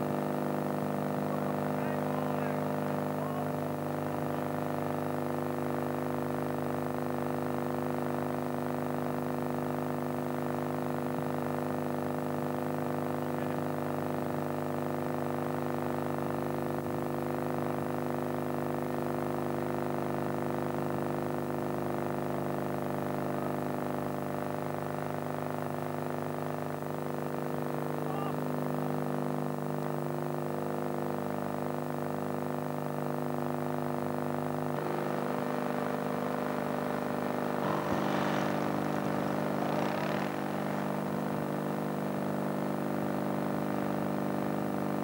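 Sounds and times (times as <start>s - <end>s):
electrical hum: 1.1s - 7.4s, 33.4s - 45.0s.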